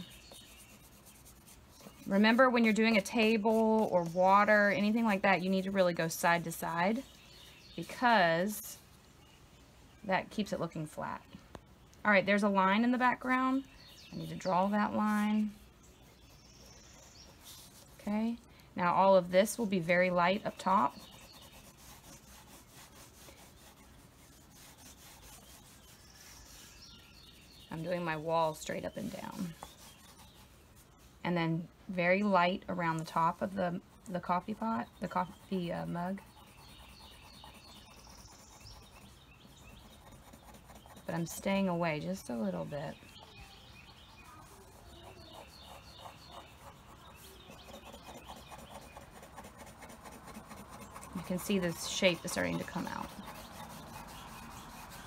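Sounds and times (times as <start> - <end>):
pencil scratching on paper: 0.0 - 7.2, 19.0 - 31.2, 32.7 - 55.0.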